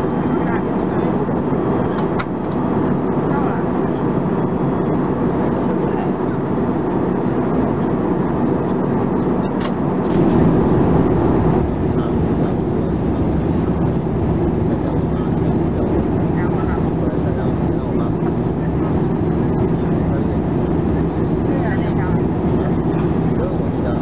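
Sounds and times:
jet engine hum: 0.0 - 24.0
rushing airflow: 10.0 - 24.0.

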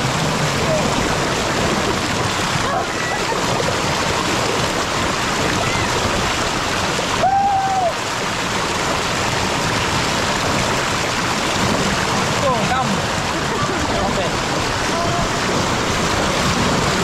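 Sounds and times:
river rapids rushing over boulders: 0.0 - 17.0.

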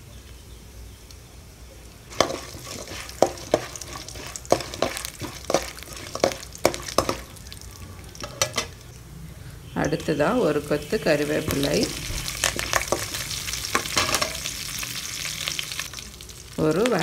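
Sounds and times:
seeds sizzling in oil: 0.1 - 17.0
metal ladle scraping pan: 2.1 - 7.4, 8.1 - 8.9, 9.8 - 15.0.

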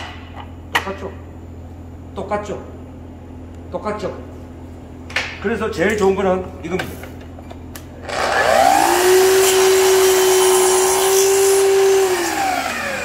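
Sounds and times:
miter saw cutting wood: 8.0 - 13.0.

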